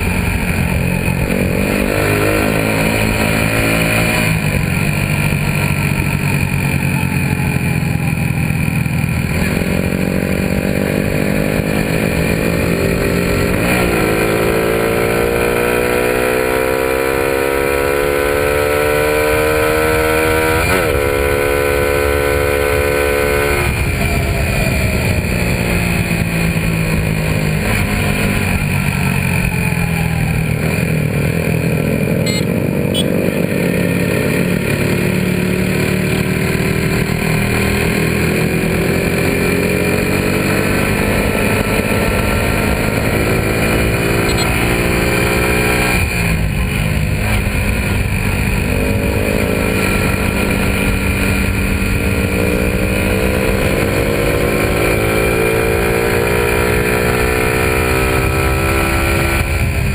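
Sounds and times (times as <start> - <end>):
motorcycle engine: 0.0 - 59.9
wind and road noise: 0.0 - 59.9.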